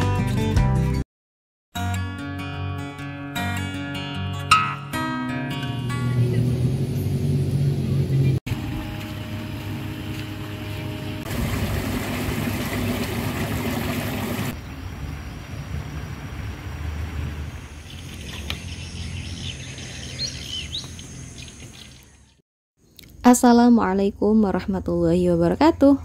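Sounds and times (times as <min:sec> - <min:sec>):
bird chirping: 0:17.5 - 0:23.0.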